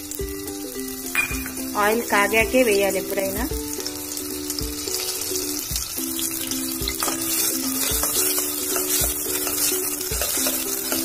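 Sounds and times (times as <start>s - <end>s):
onions sizzling in oil: 0.0s - 11.0s
spoon stirring in pan: 7.0s - 11.0s.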